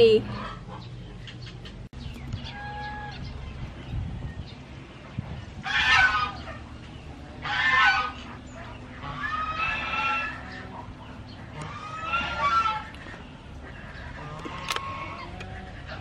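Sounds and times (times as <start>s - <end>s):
chicken calling: 2.4s - 3.5s, 5.6s - 16.0s.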